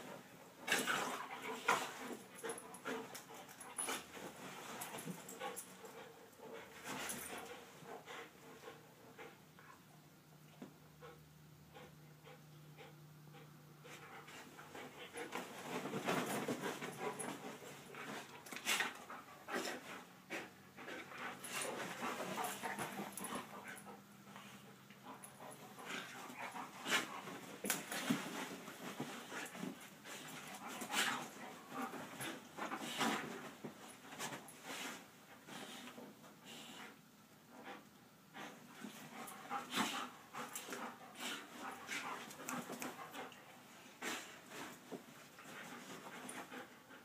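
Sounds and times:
dogs panting and snuffling: 0.0 - 47.0
dogs scuffling in bedding: 14.3 - 23.8, 25.1 - 36.0.

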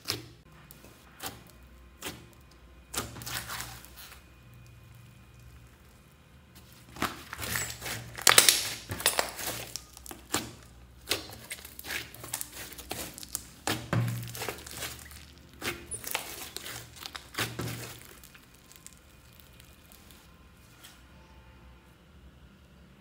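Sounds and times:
slime squishing and popping: 6.8 - 20.3.

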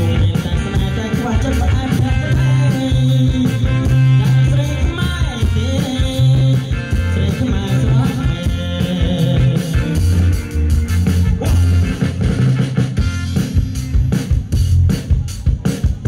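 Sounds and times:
man singing: 0.0 - 10.6, 11.2 - 12.2
dance band music: 0.0 - 16.0.

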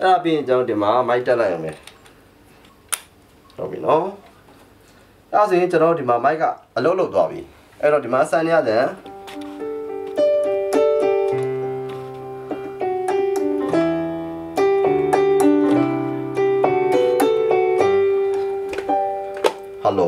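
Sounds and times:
keyboard chords over bass line: 9.0 - 19.8.

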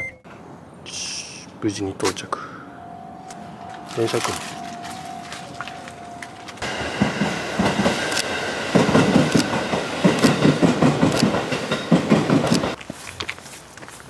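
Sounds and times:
train high whine: 2.4 - 12.8
train wheels clicking over rail joints: 5.6 - 12.8.

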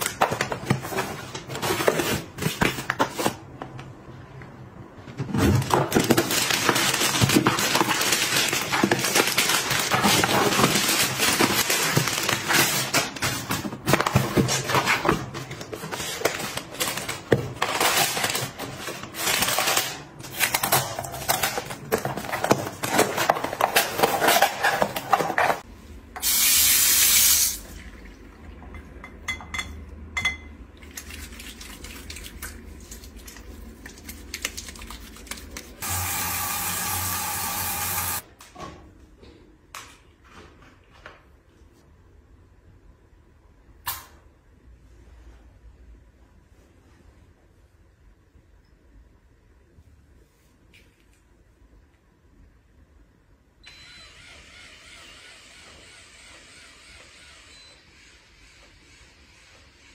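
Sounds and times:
plastic and cardboard crinkling: 5.3 - 25.7.

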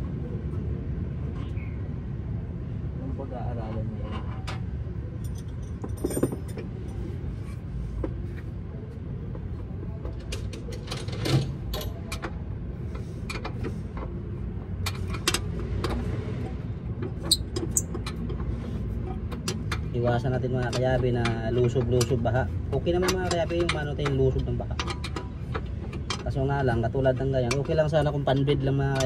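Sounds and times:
metallic clinks and knocks: 5.2 - 7.0.

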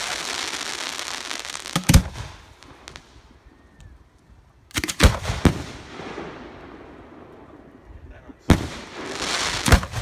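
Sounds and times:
fireworks bangs: 0.0 - 3.3, 8.4 - 10.0
fireworks crackle: 0.0 - 3.4, 8.5 - 10.0.

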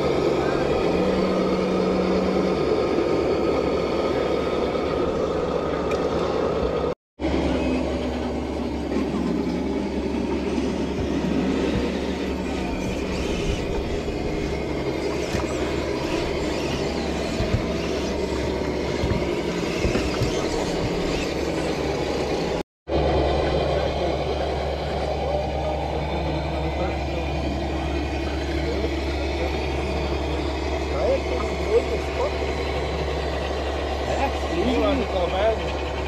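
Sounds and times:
electric motor whining: 0.0 - 24.1.

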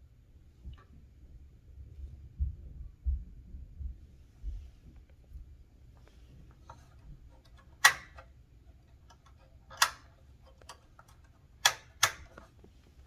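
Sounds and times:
typewriter mechanism clacking: 7.4 - 8.3, 9.1 - 12.5.

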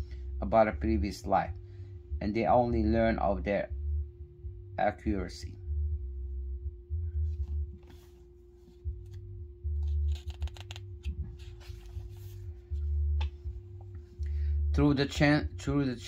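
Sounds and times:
faint steady hum: 0.0 - 16.0
paper rustling: 9.8 - 13.4.

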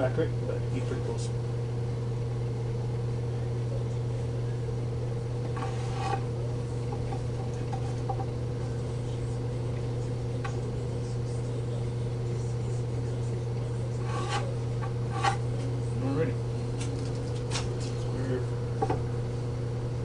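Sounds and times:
steady low hum: 0.0 - 20.0
board tapping and scraping: 5.4 - 6.3, 6.9 - 8.3, 14.0 - 15.4.

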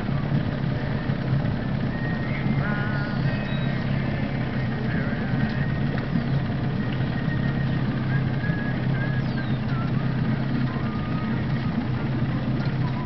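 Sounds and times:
motor idling hum: 0.0 - 13.0
faint high whistles: 1.8 - 3.8, 6.8 - 11.4.

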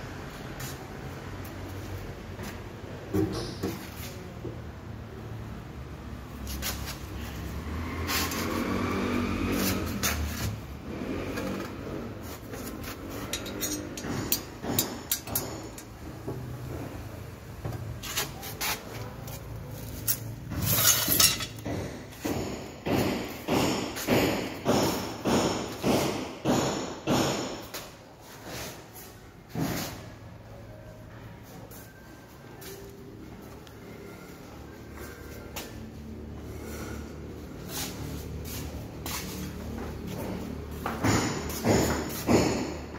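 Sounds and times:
knocks and clinks on metal fittings: 13.2 - 16.1, 20.1 - 27.6.

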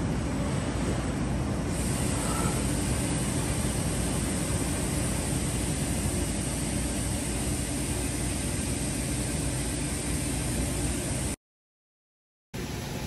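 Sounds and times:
coolant spraying hiss: 1.7 - 11.4.

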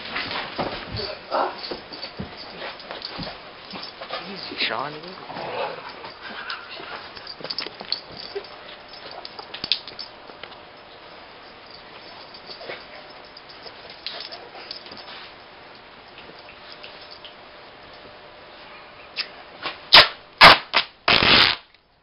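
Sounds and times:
scuffling and clothing rustling: 0.0 - 17.2.

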